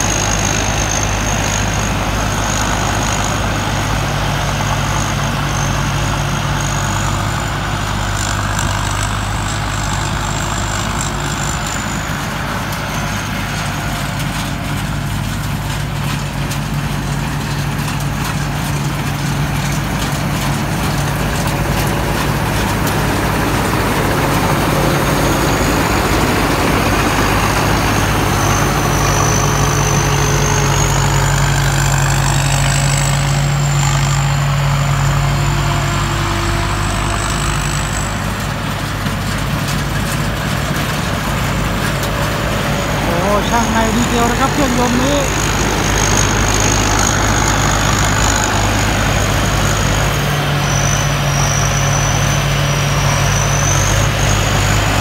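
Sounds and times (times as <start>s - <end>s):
combine harvester engine drone: 0.0s - 55.0s
high machine whine: 40.0s - 55.0s.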